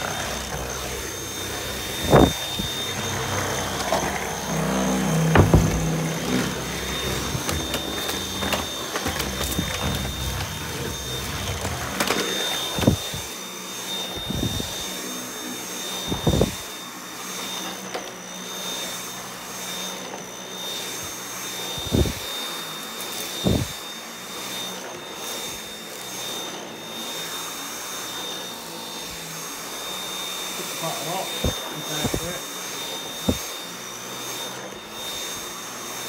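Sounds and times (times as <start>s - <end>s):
vacuum cleaner running: 0.0s - 36.0s
dull knocks: 5.3s - 6.1s.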